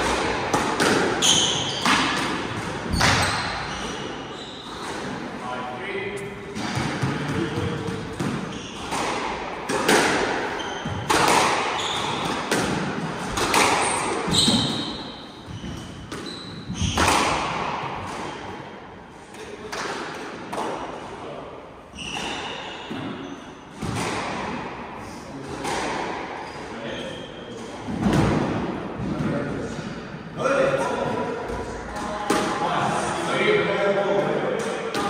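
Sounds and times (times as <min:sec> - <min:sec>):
squash ball hits echoing: 0:00.0 - 0:05.3, 0:06.5 - 0:18.7, 0:19.3 - 0:21.0, 0:22.0 - 0:26.5, 0:27.5 - 0:29.8, 0:30.8 - 0:32.8, 0:34.2 - 0:35.0
shoes squeaking on wooden floor: 0:01.2 - 0:02.0, 0:02.9 - 0:05.0, 0:10.6 - 0:12.3, 0:13.8 - 0:17.0.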